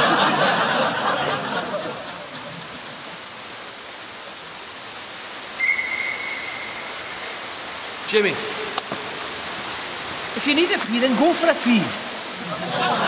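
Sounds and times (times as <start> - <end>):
indoor swimming pool hiss: 0.0 - 13.0
whistle blast: 5.6 - 7.2.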